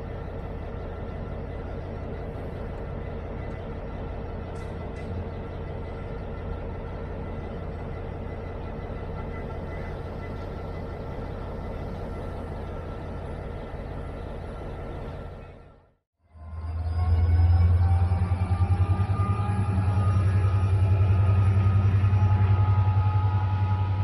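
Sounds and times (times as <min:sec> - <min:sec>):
diesel locomotive engine idling: 0:00.0 - 0:15.9.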